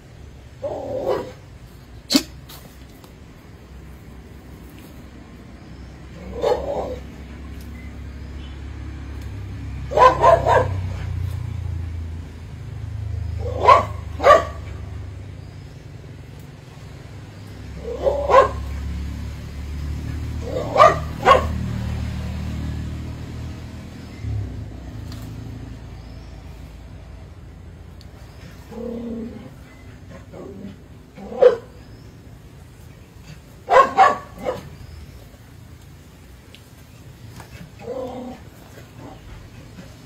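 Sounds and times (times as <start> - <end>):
animal barking: 0.6 - 1.4, 6.2 - 7.3, 9.8 - 11.2, 13.4 - 15.0, 17.7 - 19.0, 20.1 - 22.0, 28.6 - 31.8, 33.4 - 34.9.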